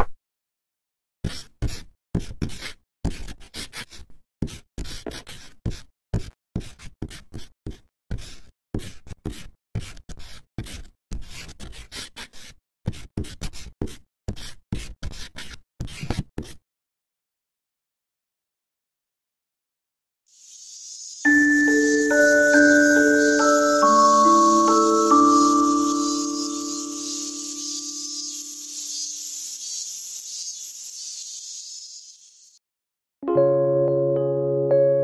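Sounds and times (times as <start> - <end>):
pencil scratching on paper: 1.2 - 16.6, 21.7 - 32.6.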